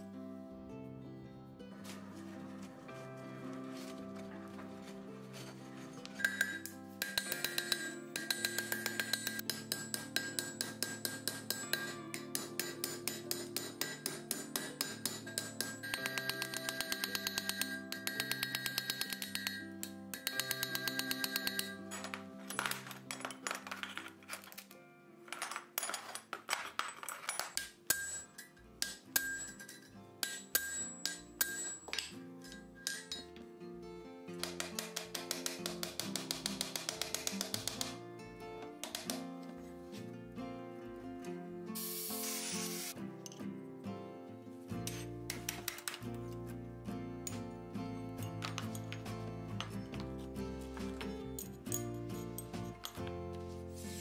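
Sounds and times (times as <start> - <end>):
background music: 0.0 - 54.0
hammer striking iron on anvil: 6.2 - 22.2, 27.6 - 33.4, 34.4 - 38.0.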